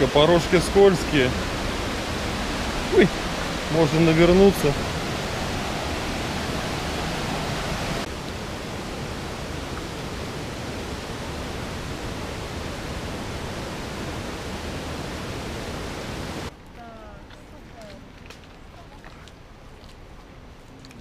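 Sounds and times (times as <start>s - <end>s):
waterfall roaring: 0.0s - 16.5s.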